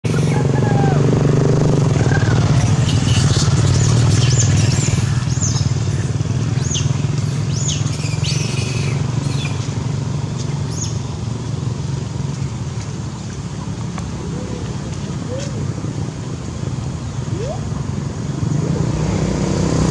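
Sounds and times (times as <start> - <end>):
vehicle engine humming: 0.0 - 19.9
short high chirping calls: 17.3 - 17.7.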